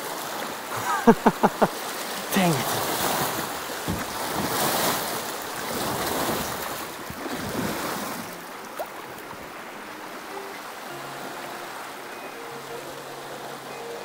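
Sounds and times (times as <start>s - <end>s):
water rushing over rocks: 0.0s - 14.0s
knock on kayak hull: 3.8s - 4.6s.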